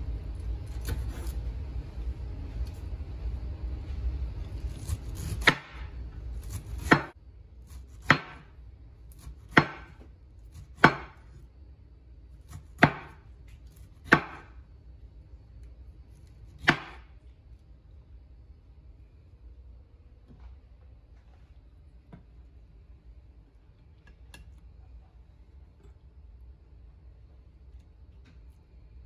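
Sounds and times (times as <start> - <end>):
knife chopping on wooden board: 4.7 - 8.5, 9.1 - 11.4, 12.5 - 14.5, 16.6 - 17.1.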